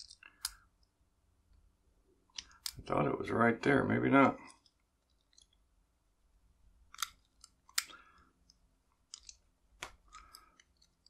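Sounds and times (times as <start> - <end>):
metallic clicks: 6.9 - 11.0.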